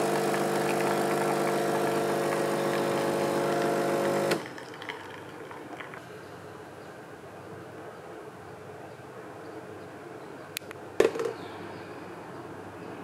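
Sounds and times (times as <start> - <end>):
espresso machine pump buzzing: 0.0 - 4.5.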